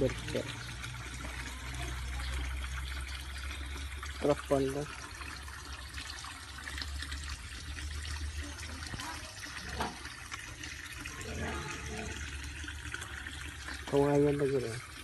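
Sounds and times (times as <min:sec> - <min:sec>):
water pouring into a pond: 0:00.0 - 0:15.0.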